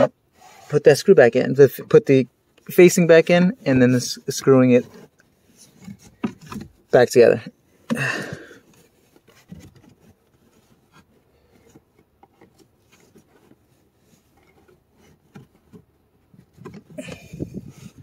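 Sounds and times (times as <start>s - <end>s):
rubbing and scraping: 0.0s - 18.0s.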